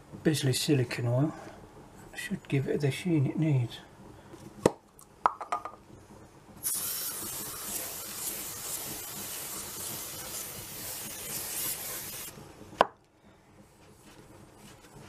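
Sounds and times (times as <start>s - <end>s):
aerosol can spraying hiss: 6.6s - 12.3s.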